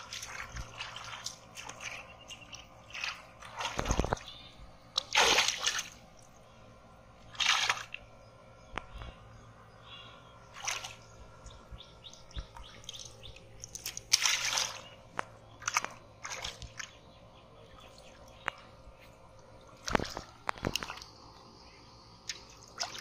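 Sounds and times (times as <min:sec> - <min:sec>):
hands splashing in water: 0:05.0 - 0:06.0, 0:07.3 - 0:08.0, 0:12.8 - 0:17.0.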